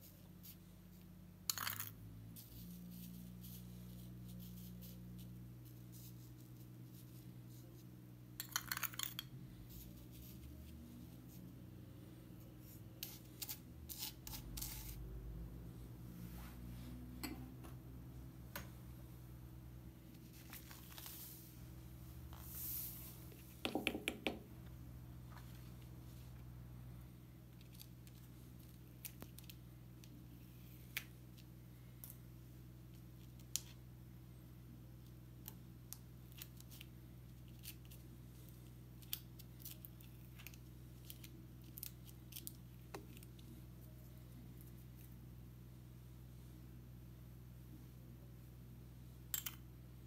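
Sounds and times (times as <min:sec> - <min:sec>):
small ticks and scratches: 0:02.4 - 0:07.9, 0:27.5 - 0:30.2, 0:35.0 - 0:45.2.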